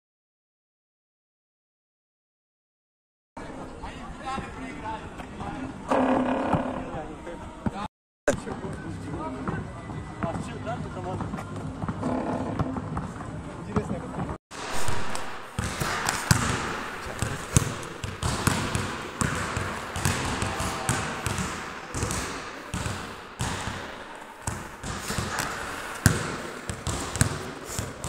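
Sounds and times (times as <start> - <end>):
basketball bouncing indoors: 14.6 - 28.0.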